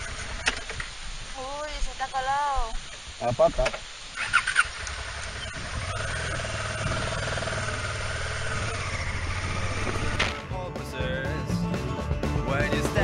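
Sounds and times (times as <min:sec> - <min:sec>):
motorcycle engine pulling away: 0:00.0 - 0:00.8, 0:04.2 - 0:11.3.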